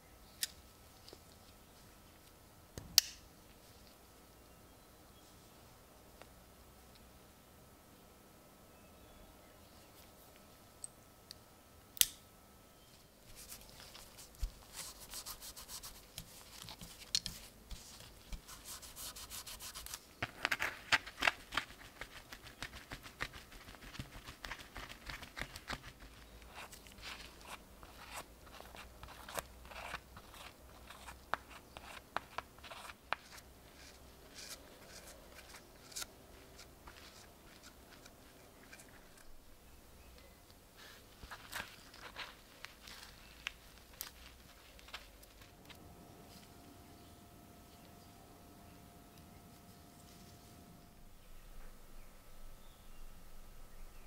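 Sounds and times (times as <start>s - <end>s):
rubbing and scraping paste: 13.3s - 39.3s, 40.8s - 45.5s.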